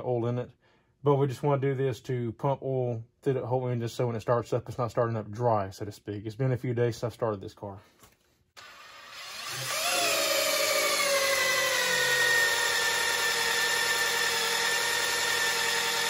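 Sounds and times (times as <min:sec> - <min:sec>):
cordless drill whining: 0:08.6 - 0:16.0.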